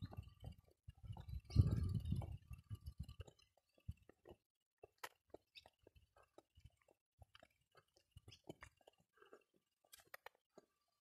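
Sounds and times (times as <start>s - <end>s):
small clicks and crackles: 3.0s - 10.9s.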